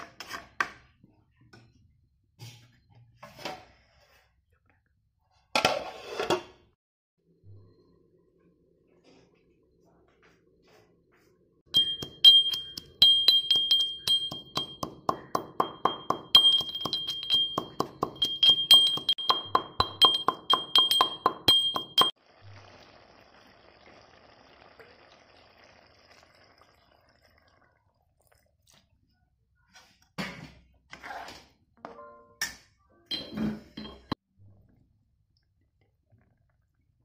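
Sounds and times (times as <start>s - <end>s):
metal pestle pounding in stone mortar: 11.8s - 22.1s.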